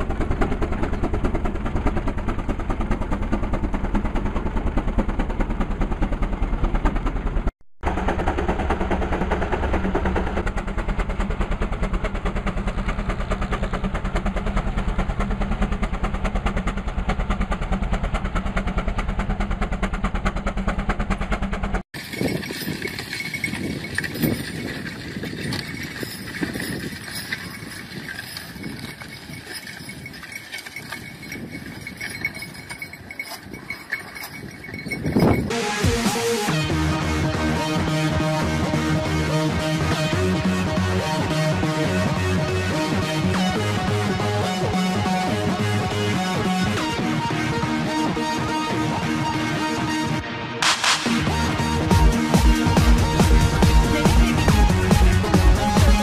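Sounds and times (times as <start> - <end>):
outdoor ambient sound: 0.0 - 56.0
steam engine clattering: 7.9 - 35.9.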